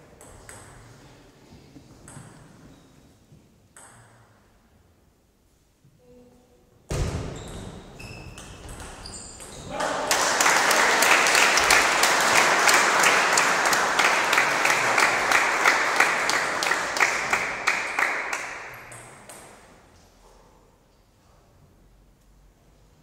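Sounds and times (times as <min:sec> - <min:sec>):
spectators applauding: 0:09.7 - 0:18.9.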